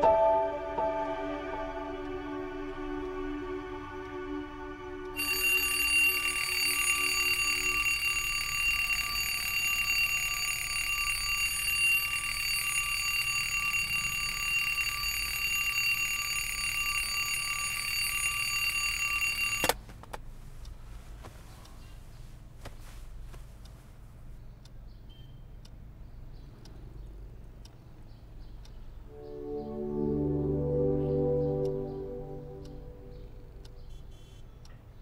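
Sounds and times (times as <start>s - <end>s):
alarm clock bell ringing: 5.2s - 19.8s
faint rustling: 19.8s - 24.4s.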